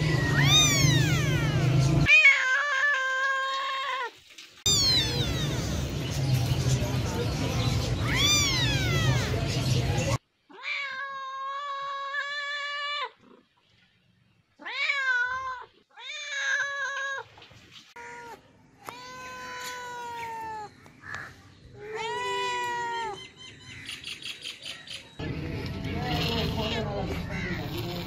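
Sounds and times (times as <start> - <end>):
cats meowing: 0.0 - 6.0, 7.8 - 9.8, 10.5 - 13.4, 14.6 - 23.2.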